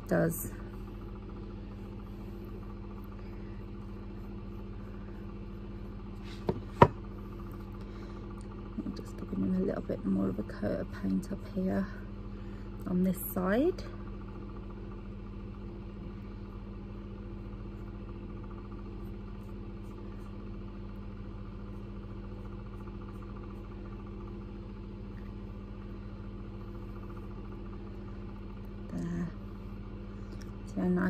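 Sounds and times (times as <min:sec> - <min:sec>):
low electrical hum: 0:00.0 - 0:31.0.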